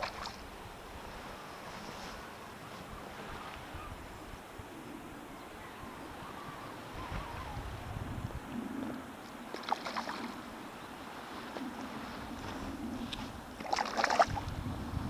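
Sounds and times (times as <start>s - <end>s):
water splashing: 0.0s - 0.5s, 9.5s - 10.5s, 13.6s - 14.5s
low water sloshing: 0.0s - 1.6s, 9.4s - 12.4s, 13.4s - 14.6s.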